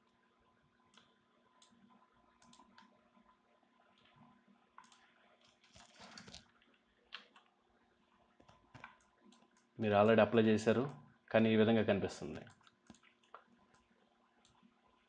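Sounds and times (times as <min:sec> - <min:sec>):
faint room hum: 0:00.0 - 0:15.0
computer mouse clicks: 0:00.8 - 0:07.5, 0:08.4 - 0:09.7, 0:12.4 - 0:15.0.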